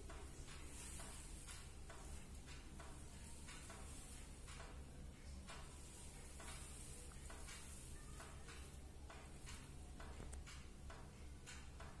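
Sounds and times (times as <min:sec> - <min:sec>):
faint irregular clicks: 0:00.0 - 0:12.0.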